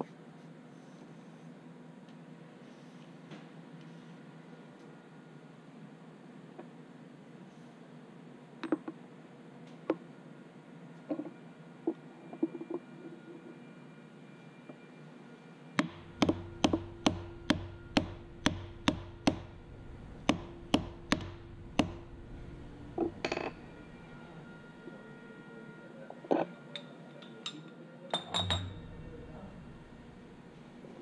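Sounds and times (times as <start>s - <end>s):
hammer tapping on metal: 15.8s - 19.6s, 20.2s - 22.1s
metal clinks: 28.2s - 29.0s.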